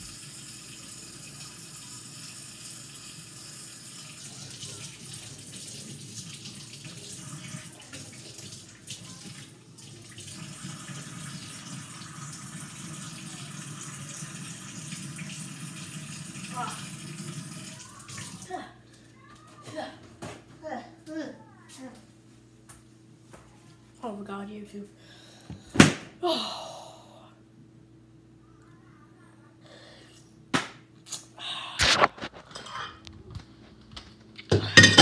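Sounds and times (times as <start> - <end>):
tap water running into sink: 0.0 - 18.5.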